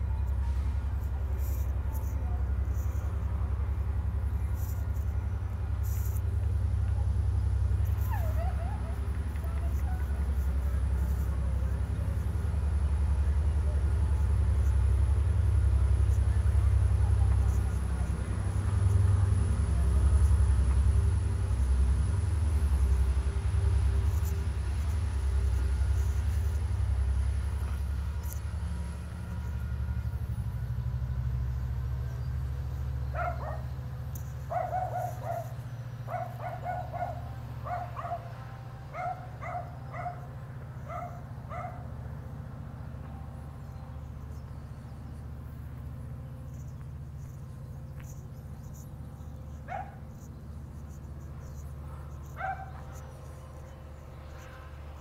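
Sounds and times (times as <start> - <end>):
small dog yapping: 8.0 - 9.0.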